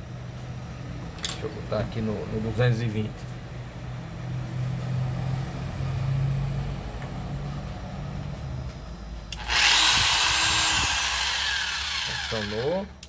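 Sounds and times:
angle grinder motor whining: 0:09.3 - 0:13.0.

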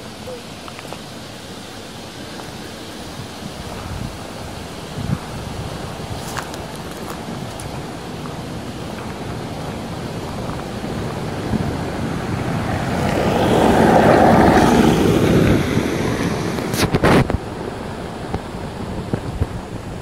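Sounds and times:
wind rushing on microphone: 0:00.9 - 0:20.0.

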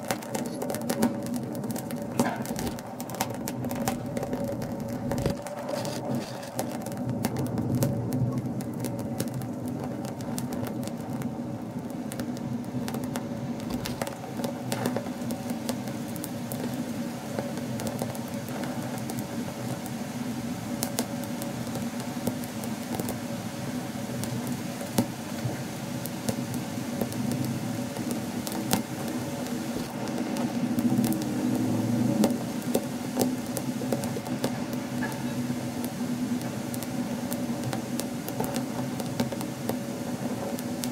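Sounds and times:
grapes sizzling and popping: 0:00.0 - 0:40.9
steady low hum: 0:00.0 - 0:40.9.

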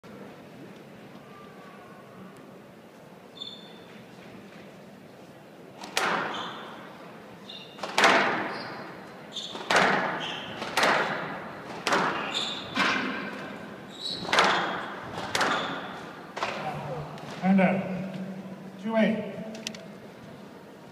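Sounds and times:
shoe squeaks on court floor: 0:03.4 - 0:04.0, 0:06.2 - 0:06.8, 0:07.4 - 0:07.8, 0:08.4 - 0:10.7, 0:12.2 - 0:13.0, 0:13.9 - 0:16.1
squash ball smacking off walls: 0:07.8 - 0:08.5, 0:09.6 - 0:13.4, 0:14.1 - 0:15.8.

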